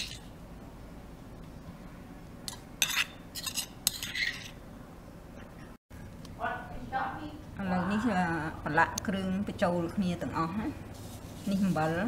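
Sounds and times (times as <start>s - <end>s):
metal spoon scraping stone mortar: 2.5s - 4.6s.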